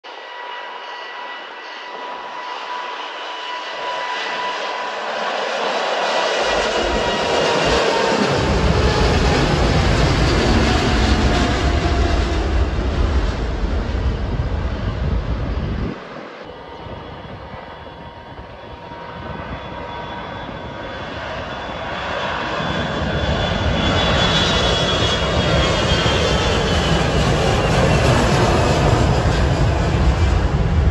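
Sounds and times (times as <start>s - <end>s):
jet engines whining at takeoff: 0.0s - 30.9s
deep rumble: 6.6s - 20.8s.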